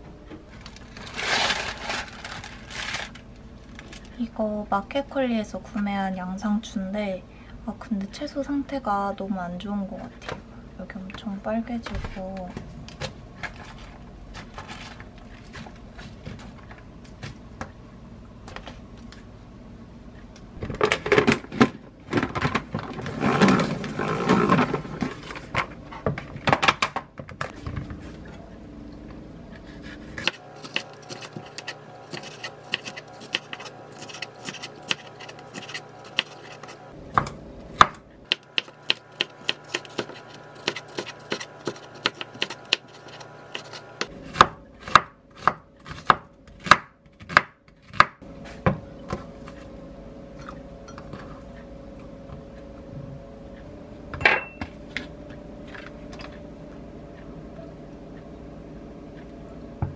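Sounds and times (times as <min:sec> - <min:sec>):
rustling of handled food: 0:00.6 - 0:04.1.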